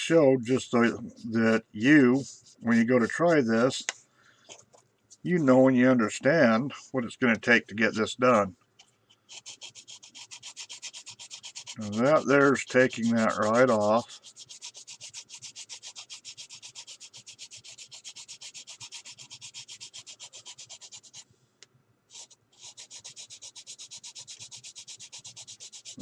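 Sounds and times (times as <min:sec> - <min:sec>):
sanding stick rubbing: 0:09.3 - 0:21.2, 0:22.1 - 0:26.0.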